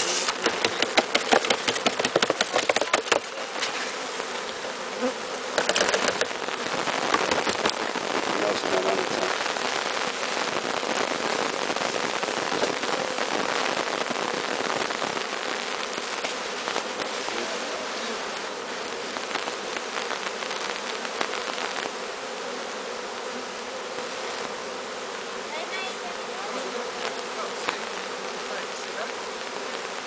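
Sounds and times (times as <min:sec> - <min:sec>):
bee swarm buzzing: 0:00.0 - 0:30.0.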